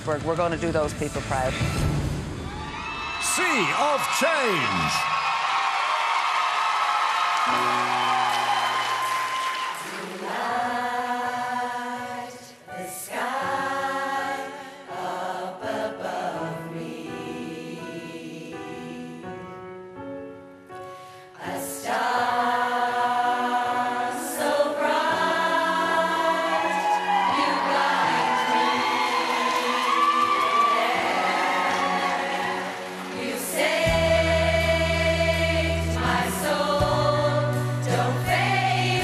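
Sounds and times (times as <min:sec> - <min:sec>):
women's choir singing: 0:07.5 - 0:19.8, 0:21.2 - 0:39.0.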